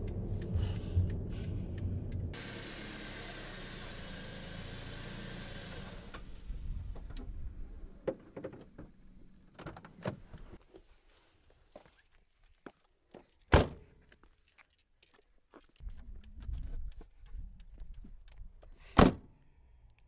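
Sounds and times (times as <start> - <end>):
car engine rumble: 0.0 - 10.6
road noise: 0.0 - 10.6.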